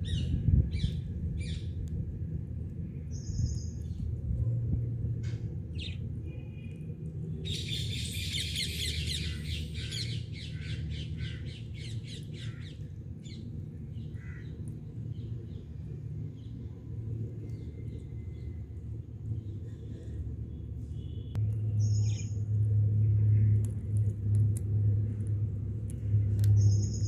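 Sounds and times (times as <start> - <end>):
parakeets squawking and chirping: 7.5 - 12.8.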